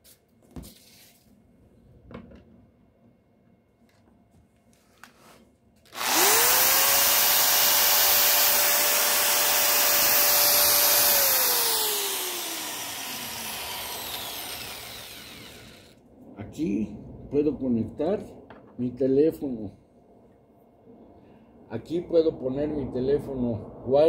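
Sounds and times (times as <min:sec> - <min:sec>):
electric drill whining: 0:05.9 - 0:16.0.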